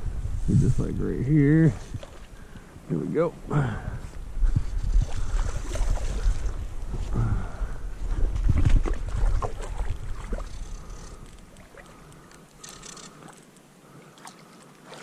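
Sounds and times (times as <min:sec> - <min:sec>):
wind rumble on microphone: 0:00.0 - 0:11.8
faint water splashes: 0:01.7 - 0:02.7, 0:05.0 - 0:15.0
camera handling noise: 0:12.2 - 0:13.6.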